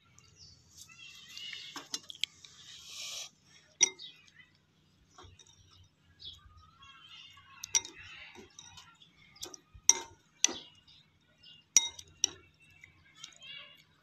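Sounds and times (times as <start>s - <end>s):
spoon clinking against glass bowl: 3.8s - 4.2s, 7.6s - 8.8s, 9.4s - 10.7s, 11.8s - 12.4s.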